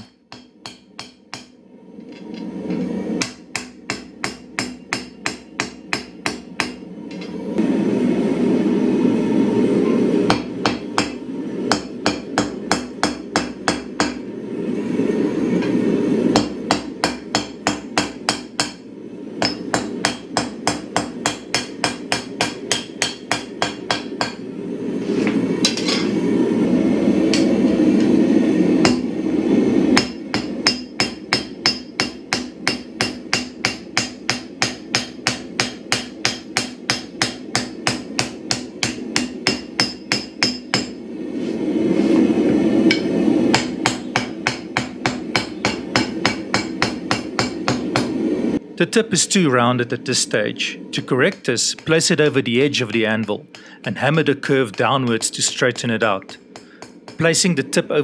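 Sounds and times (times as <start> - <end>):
hammer striking steel on anvil: 0.0 - 1.6, 3.2 - 7.4, 10.3 - 14.2, 16.3 - 18.8, 19.4 - 24.4, 28.8 - 29.1, 30.0 - 41.0, 42.9 - 48.2, 56.2 - 57.3.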